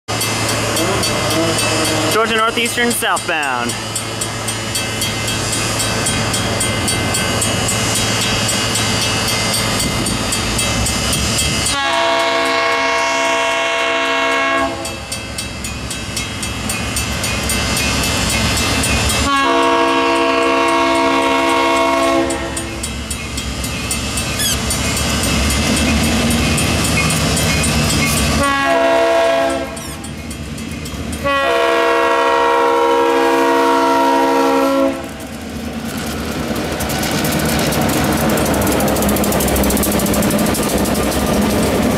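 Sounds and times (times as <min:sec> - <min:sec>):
locomotive horn blasts: 0:11.7 - 0:15.0, 0:19.2 - 0:22.8, 0:28.4 - 0:29.8, 0:31.2 - 0:35.1.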